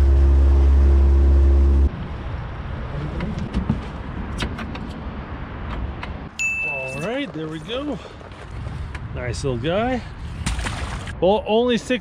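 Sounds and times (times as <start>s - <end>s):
boat motor humming: 0.0s - 1.9s.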